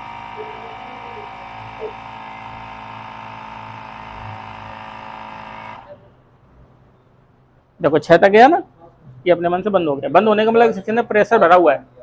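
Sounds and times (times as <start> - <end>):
air compressor humming: 0.0 - 6.4.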